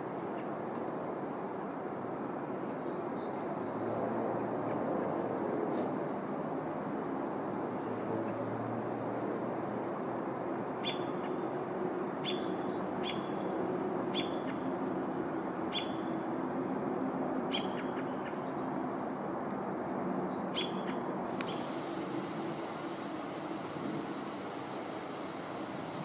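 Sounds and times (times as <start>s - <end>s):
steady background hum: 9.4s - 26.0s.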